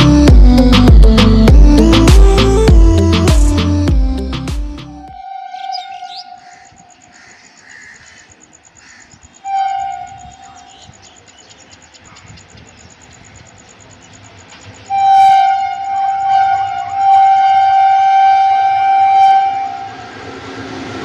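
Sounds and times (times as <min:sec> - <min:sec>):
low rumble of train: 0:00.0 - 0:21.0
train horn blasts: 0:05.0 - 0:07.0, 0:09.4 - 0:10.6, 0:14.9 - 0:21.0.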